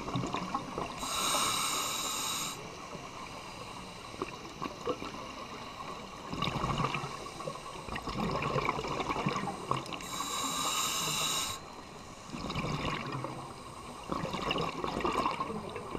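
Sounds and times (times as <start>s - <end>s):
regulator hissing inhale: 0.9s - 4.6s, 9.9s - 12.4s
bubbling exhalations underwater: 8.0s - 9.9s, 12.4s - 13.3s.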